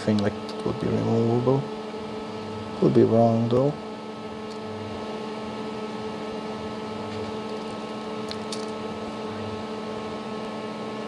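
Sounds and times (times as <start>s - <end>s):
electrical machine hum: 0.0s - 11.0s.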